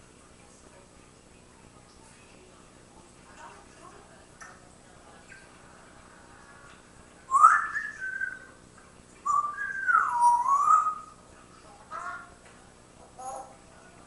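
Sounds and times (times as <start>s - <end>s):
parrot whistling: 7.3s - 8.5s, 9.2s - 11.2s.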